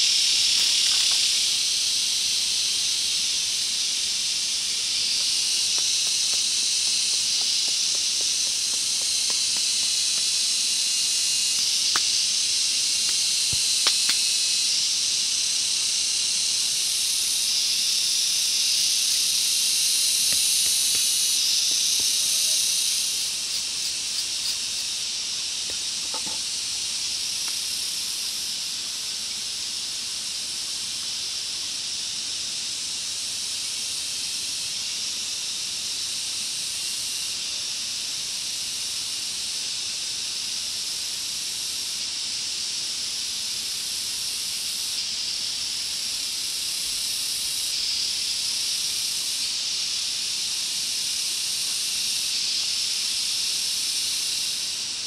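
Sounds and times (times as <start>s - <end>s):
insects chorus: 0.0s - 55.0s.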